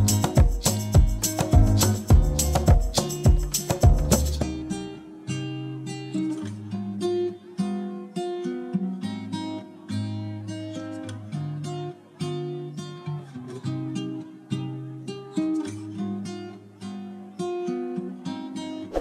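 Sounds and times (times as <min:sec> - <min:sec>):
acoustic guitar music: 0:00.0 - 0:19.0.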